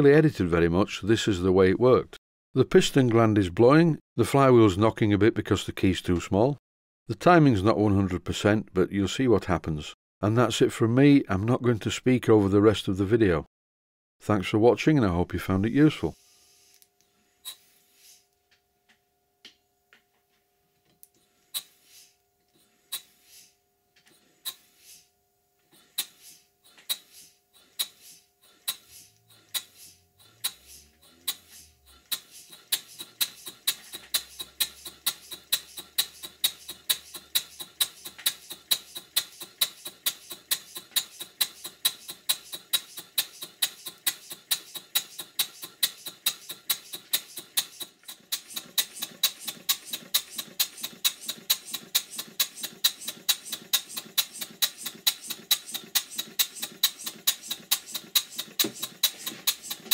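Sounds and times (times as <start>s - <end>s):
model steam engine exhaust beat: 25.8s - 59.9s.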